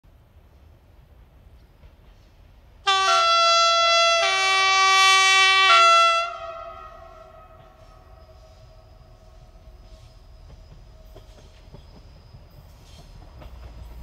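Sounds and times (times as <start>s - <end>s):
two-tone train horn: 2.8s - 10.0s.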